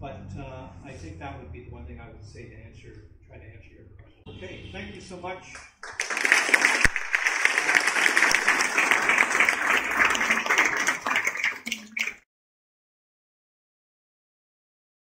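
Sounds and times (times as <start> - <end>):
audience applauding: 5.6 - 12.2.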